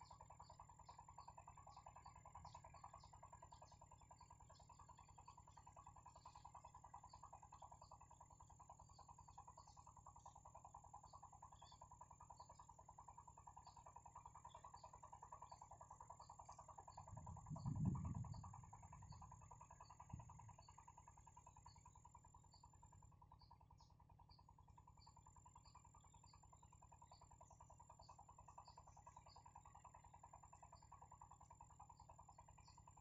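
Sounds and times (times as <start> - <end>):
fast-pulsing drone: 17.0 - 20.6.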